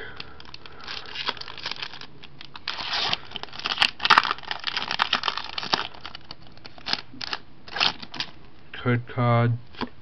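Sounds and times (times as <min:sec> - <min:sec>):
foil wrapper tearing and crinkling: 0:00.4 - 0:08.4.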